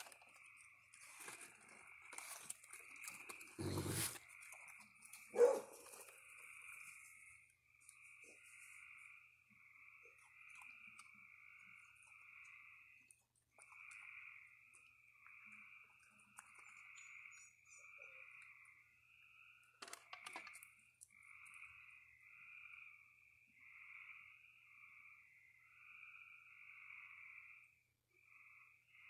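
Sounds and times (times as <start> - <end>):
raccoon clicking and rustling food: 0.0 - 8.8, 13.0 - 17.1, 19.8 - 21.1
frogs calling: 0.0 - 29.0.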